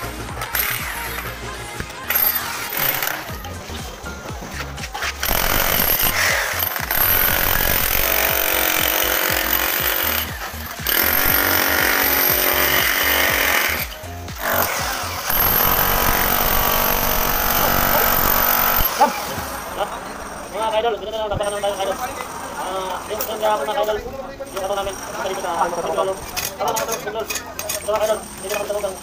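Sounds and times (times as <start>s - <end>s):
rotary hammer chipping concrete: 2.0s - 3.5s, 4.6s - 19.6s, 23.1s - 29.0s.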